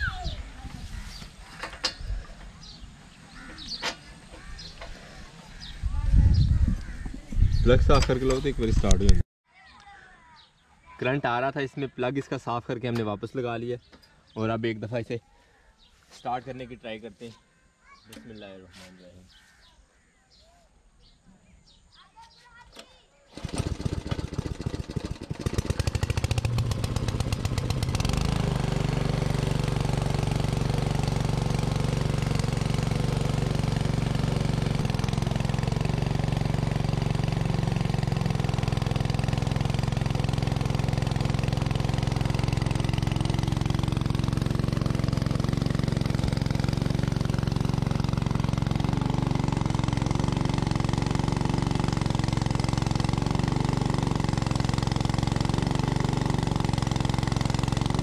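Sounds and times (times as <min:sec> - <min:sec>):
petrol water pump engine: 0:23.4 - 0:58.0.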